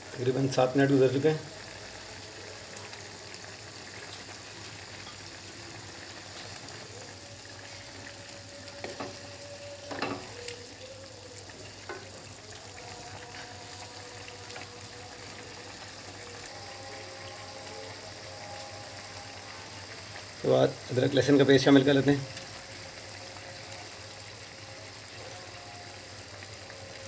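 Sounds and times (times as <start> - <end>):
chicken simmering in oil: 0.0 - 27.0.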